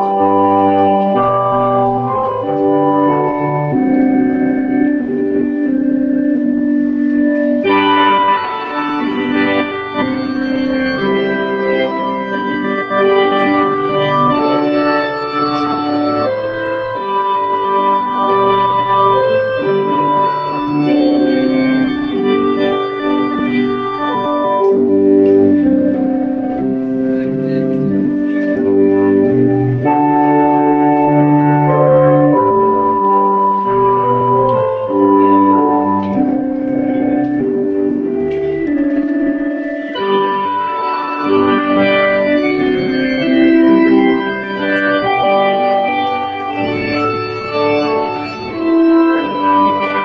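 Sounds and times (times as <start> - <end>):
organ-style keyboard chords: 0.0 - 50.0.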